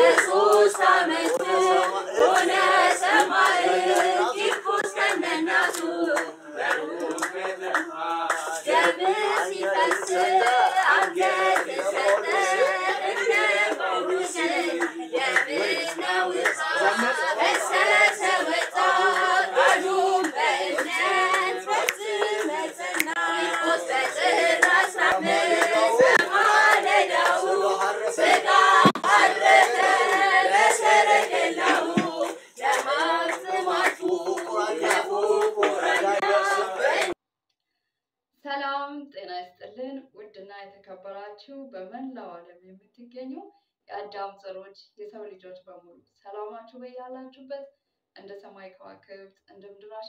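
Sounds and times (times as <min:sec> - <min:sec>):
hand claps: 0:00.0 - 0:37.2
voices singing together: 0:00.0 - 0:37.2.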